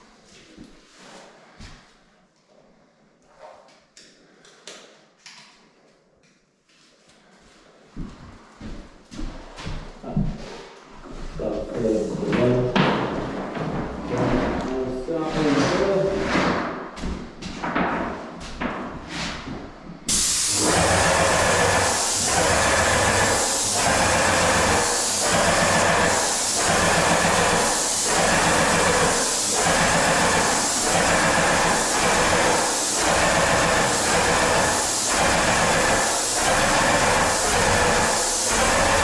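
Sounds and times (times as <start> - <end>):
paint spraying hiss: 20.1 - 39.0
pump humming: 20.1 - 39.0.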